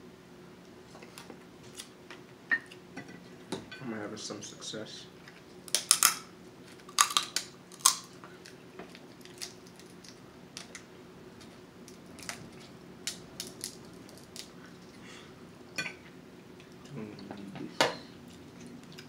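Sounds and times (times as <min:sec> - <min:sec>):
crab shells cracking: 0:05.6 - 0:10.9, 0:11.8 - 0:14.6.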